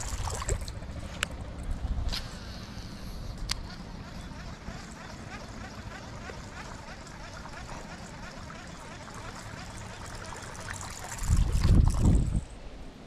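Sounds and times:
loud water splash: 0.0 - 0.7
water lapping: 0.0 - 1.2, 2.3 - 12.4.

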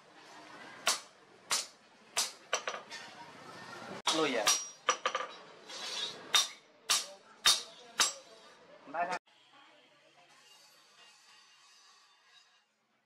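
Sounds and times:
hammer striking hot steel on anvil: 0.8 - 2.8, 4.1 - 5.0, 6.3 - 8.3.

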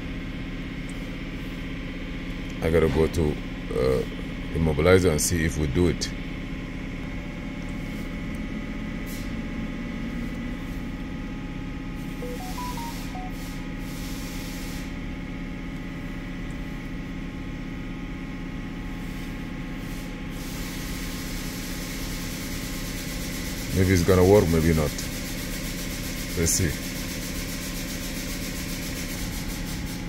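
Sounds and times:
short beeps: 12.2 - 13.6.

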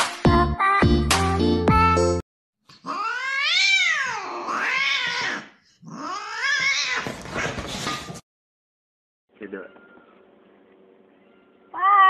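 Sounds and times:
music: 0.0 - 2.2
cat meowing: 2.8 - 7.1, 11.7 - 12.0.

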